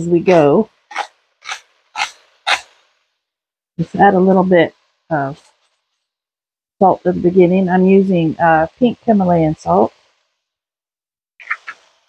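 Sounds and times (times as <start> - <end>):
salt grinder crunching: 0.9 - 2.8.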